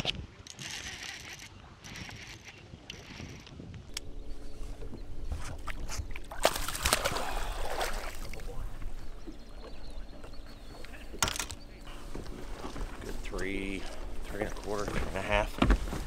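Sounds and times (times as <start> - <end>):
water splashing: 4.0 - 15.6.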